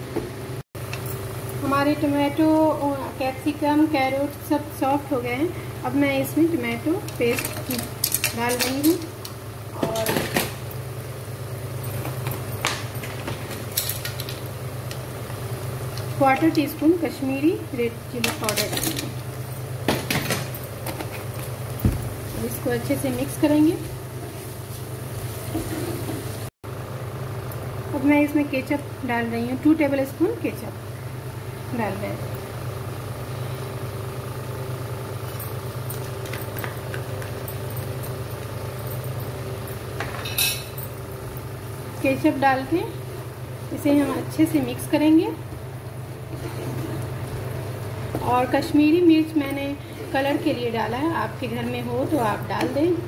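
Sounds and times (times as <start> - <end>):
low machine hum: 0.0 - 53.0
utensils clicking on frying pan: 7.0 - 10.6.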